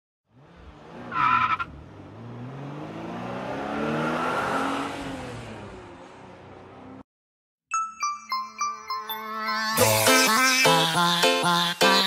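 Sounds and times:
car engine revving: 0:00.3 - 0:07.0
tire squeal: 0:01.0 - 0:01.8.

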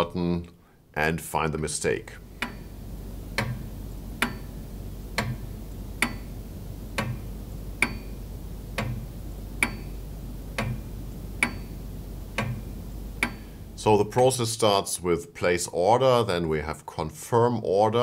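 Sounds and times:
clock ticking: 0:02.2 - 0:14.4.

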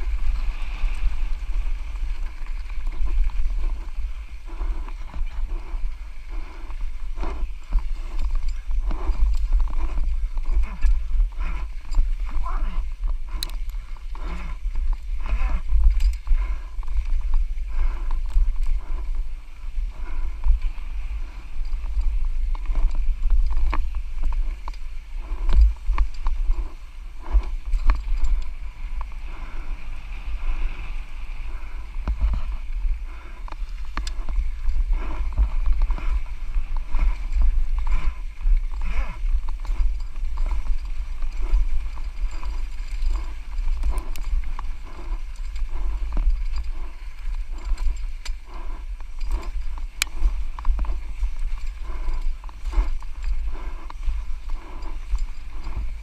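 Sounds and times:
mountain bike rattling: 0:00.0 - 0:56.0
wind buffeting microphone: 0:00.0 - 0:56.0.

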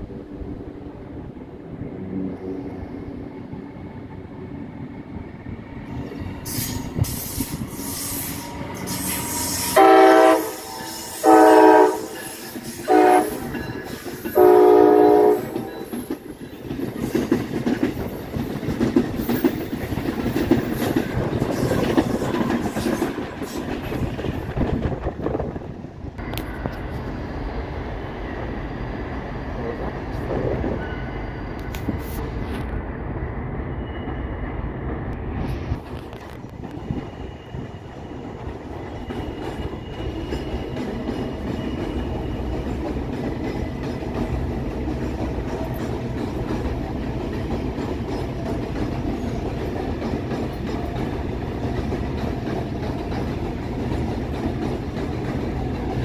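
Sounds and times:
train rumbling past: 0:00.0 - 0:56.0
locomotive horn: 0:07.8 - 0:13.6, 0:14.3 - 0:16.0.

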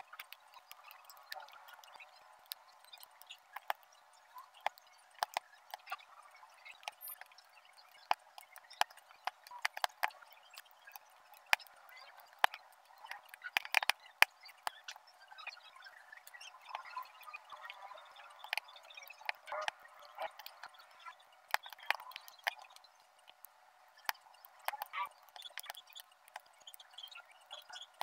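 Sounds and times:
tweezers clicking and tapping: 0:00.1 - 0:03.9, 0:13.2 - 0:14.8.

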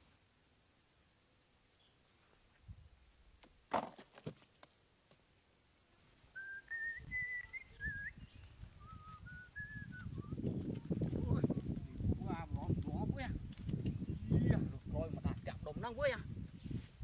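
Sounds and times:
person whistling a slow tune: 0:06.4 - 0:08.2, 0:08.8 - 0:10.4.

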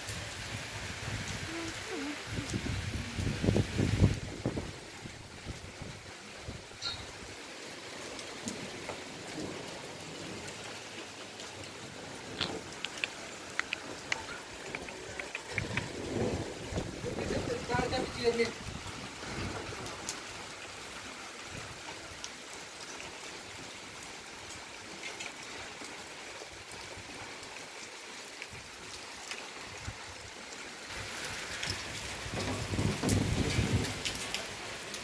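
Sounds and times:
steady rain: 0:00.0 - 0:35.0.

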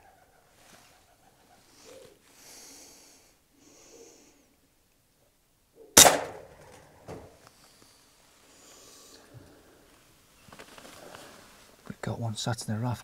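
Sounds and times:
pigeon cooing: 0:00.0 - 0:02.3
air rifle shot crack: 0:06.0 - 0:07.3.

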